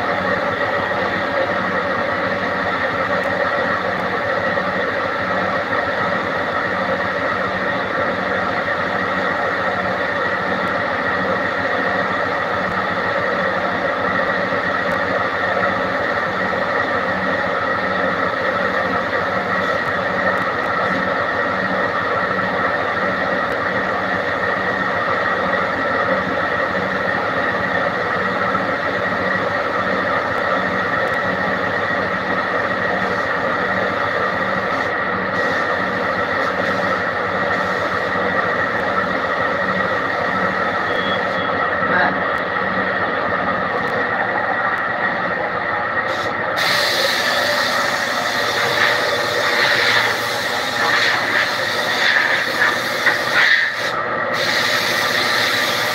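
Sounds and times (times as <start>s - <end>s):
air compressor running: 0.0s - 42.6s, 43.2s - 55.9s
spraying air hiss: 46.1s - 55.9s.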